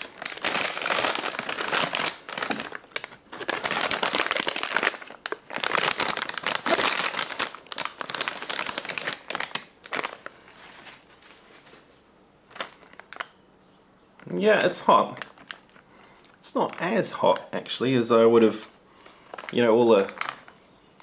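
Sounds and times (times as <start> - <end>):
plastic and foil packaging crinkling: 0.0 - 11.9, 12.5 - 13.4, 14.6 - 15.8, 19.0 - 20.6.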